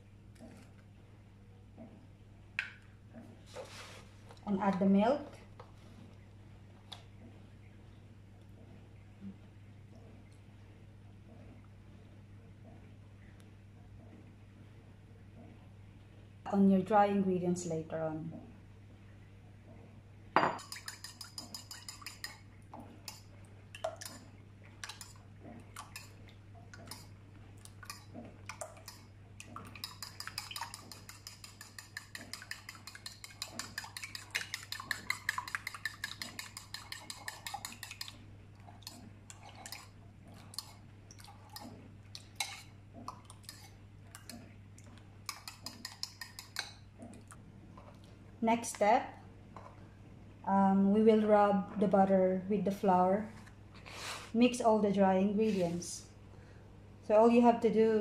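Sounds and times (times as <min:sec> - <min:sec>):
metal utensil beating eggs in bowl: 0:20.4 - 0:23.3, 0:23.9 - 0:26.2, 0:26.8 - 0:27.1, 0:27.8 - 0:44.5, 0:45.3 - 0:46.8.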